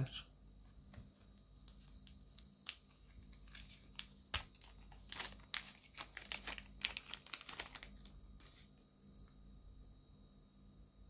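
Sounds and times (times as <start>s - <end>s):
plastic case clicking and crinkling: 0.9s - 8.1s.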